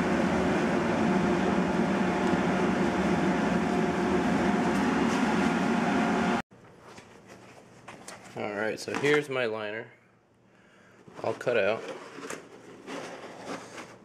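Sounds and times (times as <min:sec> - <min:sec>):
exhaust fan rush of air: 0:00.0 - 0:06.4
faint steady hum: 0:06.2 - 0:11.2.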